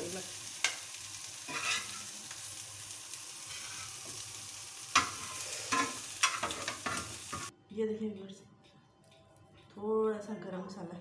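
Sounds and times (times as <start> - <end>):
egg sizzling in a pan: 0.0 - 7.5
metal spoon scraping pan: 1.5 - 2.1, 3.4 - 4.0, 5.0 - 7.5.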